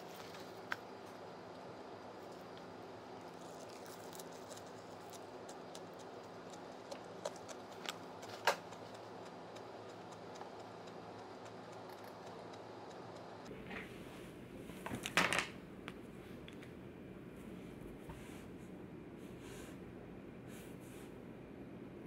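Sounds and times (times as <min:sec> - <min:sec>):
chopsticks clicking on plastic: 0:03.6 - 0:13.2.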